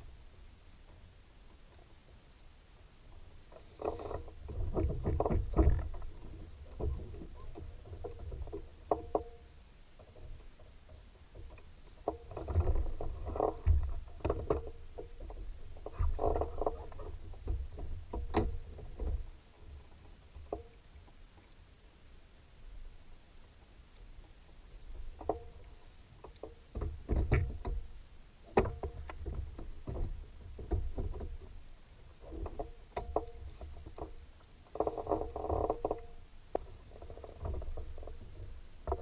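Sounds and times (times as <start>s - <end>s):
kayak knocks: 3.6s - 19.4s, 26.2s - 27.9s, 28.5s - 31.6s.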